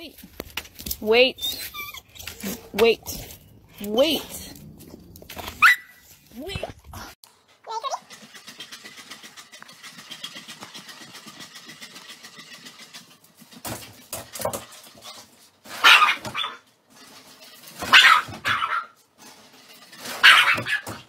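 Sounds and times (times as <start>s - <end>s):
dog barking: 15.8s - 16.6s, 17.8s - 19.0s, 20.2s - 21.0s.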